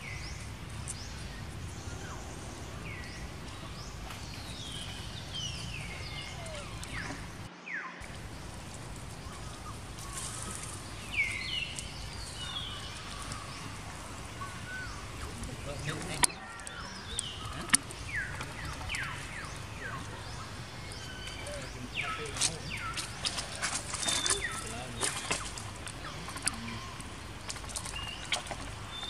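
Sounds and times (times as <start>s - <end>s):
outdoor background noise: 0.0s - 29.0s
high-pitched animal calls: 5.8s - 7.5s.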